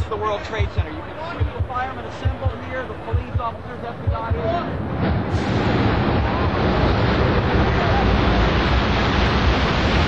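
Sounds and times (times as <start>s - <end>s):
loud rumbling roar of collapse: 4.8s - 10.0s.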